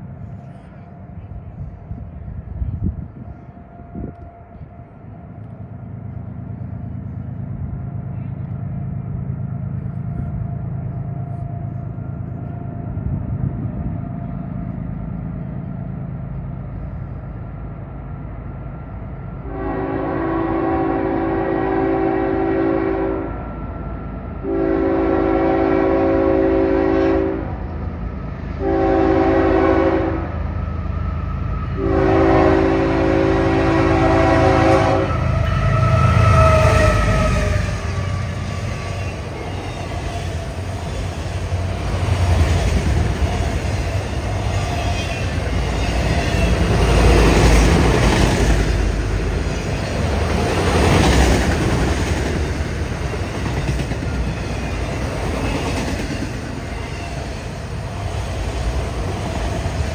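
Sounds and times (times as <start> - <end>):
locomotive rumble: 0.0 - 59.9
train air horn blasts: 19.4 - 23.4, 24.4 - 27.7, 28.6 - 30.4, 31.4 - 39.4.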